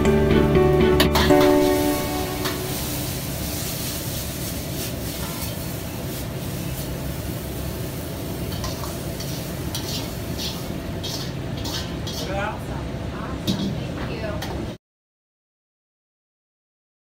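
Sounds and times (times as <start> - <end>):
gas burner rushing: 1.0 - 12.6
potatoes sizzling in a wok: 1.3 - 12.6.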